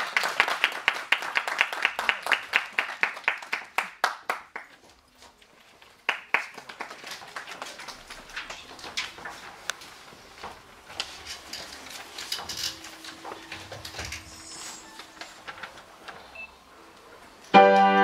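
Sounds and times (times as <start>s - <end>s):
small audience clapping: 0.0s - 5.0s, 5.7s - 9.8s.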